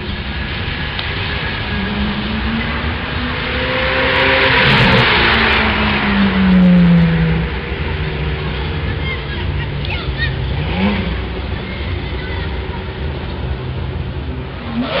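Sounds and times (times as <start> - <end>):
race car engine accelerating past: 1.6 - 8.8.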